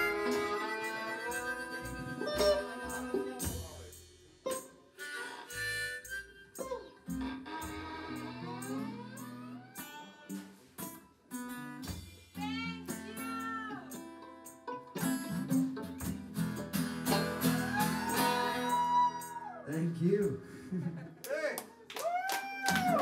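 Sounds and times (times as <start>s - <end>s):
guitar chords: 0.0s - 3.7s, 4.5s - 19.8s
sliding fiddle: 0.0s - 3.8s, 5.0s - 10.2s
acoustic blues band playing: 0.0s - 20.8s.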